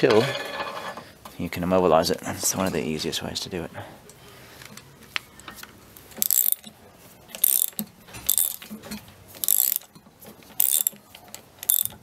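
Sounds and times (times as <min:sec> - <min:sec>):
socket ratchet clicking: 0:06.2 - 0:06.7, 0:07.4 - 0:08.7, 0:09.4 - 0:09.9, 0:10.6 - 0:11.0, 0:11.6 - 0:12.0.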